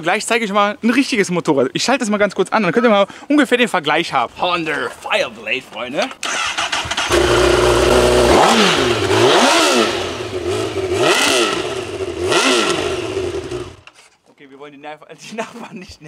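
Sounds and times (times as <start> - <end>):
motorcycle engine revving: 6.2 - 13.9
motorcycle engine starting: 6.2 - 14.0
motorcycle engine idling: 6.5 - 13.9.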